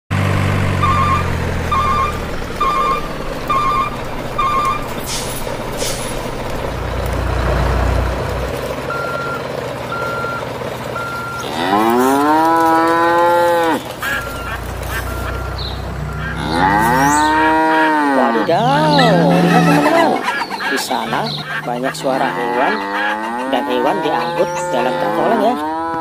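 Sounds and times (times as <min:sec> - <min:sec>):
electronic reversing alarm beeps: 0:00.8 - 0:05.0, 0:08.9 - 0:10.4, 0:11.0 - 0:11.6, 0:14.1 - 0:17.4
cow mooing: 0:11.0 - 0:20.2, 0:21.0 - 0:26.0.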